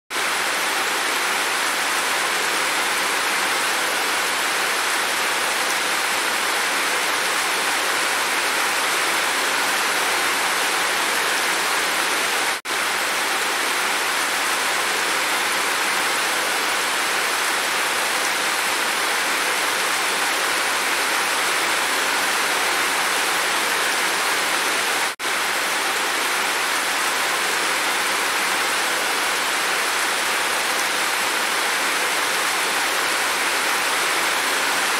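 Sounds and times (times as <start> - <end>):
heavy rain pouring off roof: 0.1 - 34.9.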